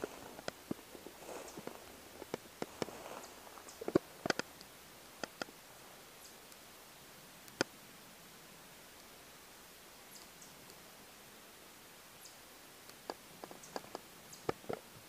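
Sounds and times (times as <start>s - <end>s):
footsteps in dry leaves: 0.0s - 4.2s
twigs cracking: 0.0s - 5.6s.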